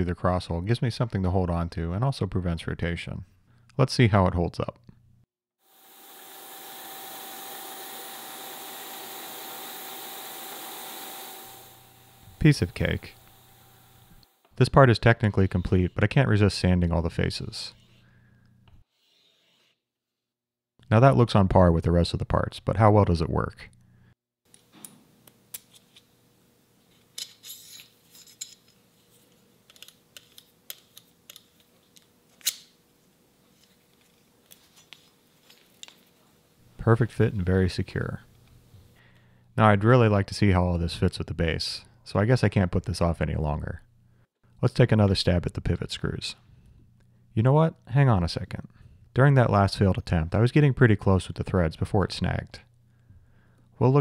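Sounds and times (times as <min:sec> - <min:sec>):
milling machine hiss and whine: 0:05.7 - 0:14.3.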